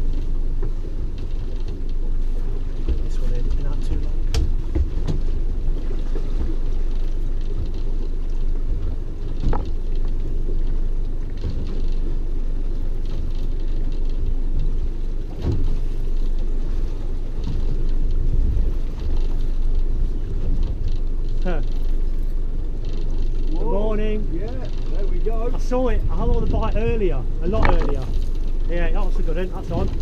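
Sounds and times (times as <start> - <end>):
low rumble of wind: 0.0 - 30.0
water around a boat: 0.0 - 30.0
knocks on a boat: 3.8 - 5.4, 27.4 - 28.1.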